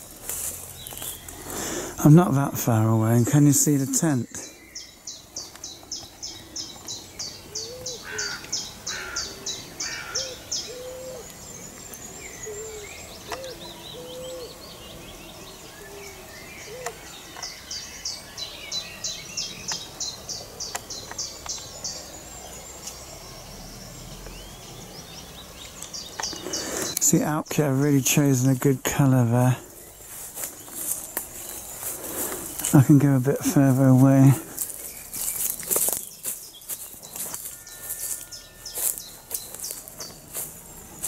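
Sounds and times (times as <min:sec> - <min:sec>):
low cooing calls: 0:06.3 - 0:17.7.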